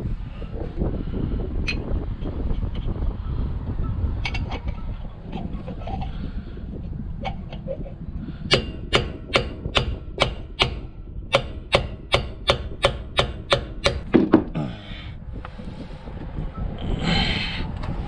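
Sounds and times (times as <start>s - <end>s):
hammer blows: 8.4s - 14.7s.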